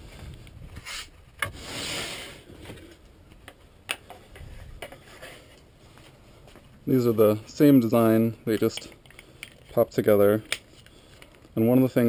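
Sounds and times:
scraping slide: 0:00.8 - 0:02.9.

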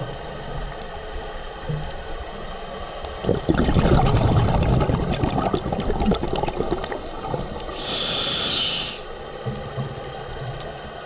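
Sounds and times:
exhaled bubbles crackling: 0:03.0 - 0:08.9
regulator hissing inhale: 0:07.6 - 0:09.2.

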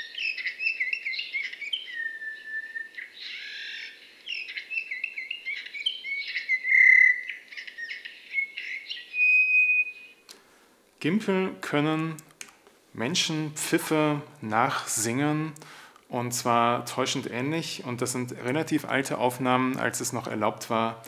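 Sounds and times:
bird whistles: 0:00.0 - 0:10.2
bird warbling song: 0:00.0 - 0:10.3.

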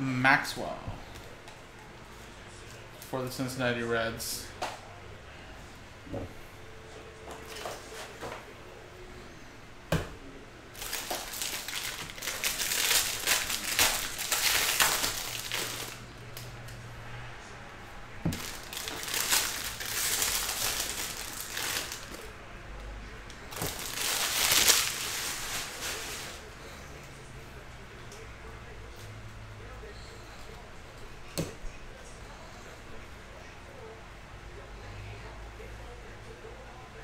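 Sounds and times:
cards rustling and crinkling: 0:10.8 - 0:16.1, 0:18.3 - 0:22.3, 0:23.4 - 0:26.4.

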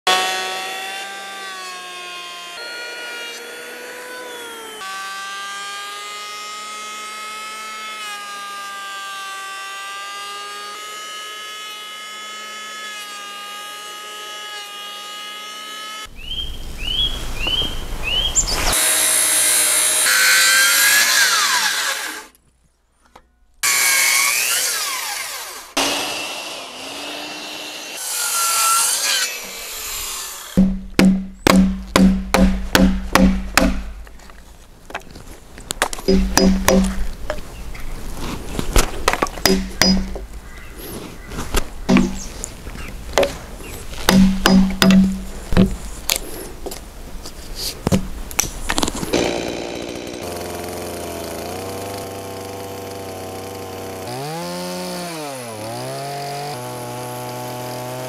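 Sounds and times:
circular saw cutting wood: 0:00.1 - 0:16.1, 0:18.7 - 0:22.4, 0:23.6 - 0:34.4, 0:39.1 - 0:40.4, 0:41.9 - 0:42.5, 0:48.8 - 0:58.0
electric hand planer whining: 0:00.1 - 0:16.1, 0:18.7 - 0:22.3, 0:23.6 - 0:30.6, 0:49.1 - 0:58.0.

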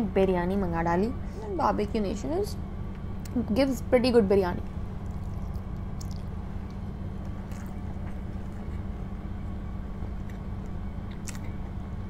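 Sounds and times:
low background hum: 0:00.0 - 0:12.0
soft chewing clicks: 0:05.0 - 0:09.0, 0:10.1 - 0:11.6.

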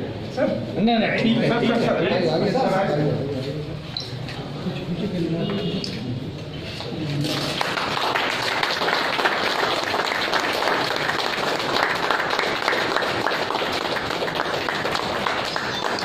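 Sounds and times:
people applauding: 0:07.1 - 0:16.0.

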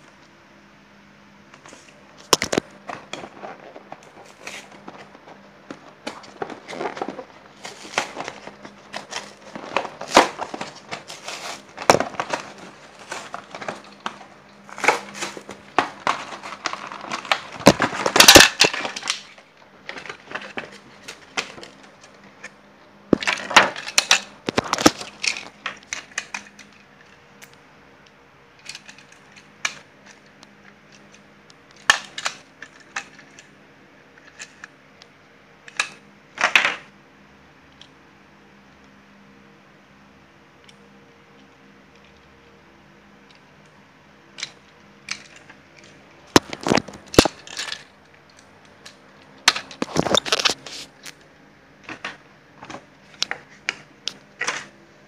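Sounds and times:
packaging crinkling and clicking: 0:01.6 - 0:27.6, 0:28.6 - 0:33.5, 0:44.4 - 0:54.8.

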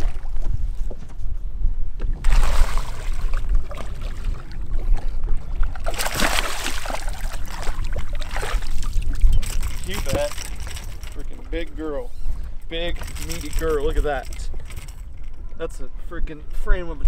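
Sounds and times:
water sloshing against boat hull: 0:02.0 - 0:15.6
fish splashing at surface: 0:02.2 - 0:04.3, 0:05.8 - 0:09.0.

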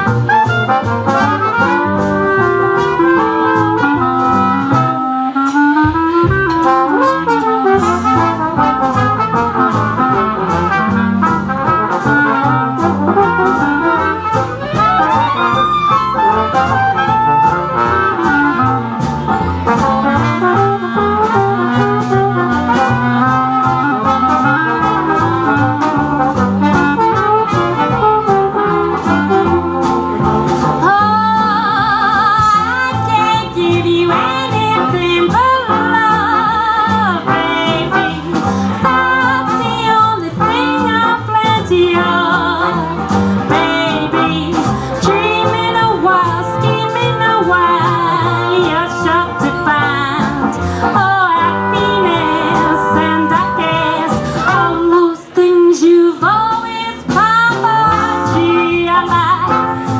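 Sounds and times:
swing jazz band playing: 0:00.0 - 0:59.9
woman singing with vibrato: 0:19.4 - 0:25.4, 0:30.8 - 0:59.8.

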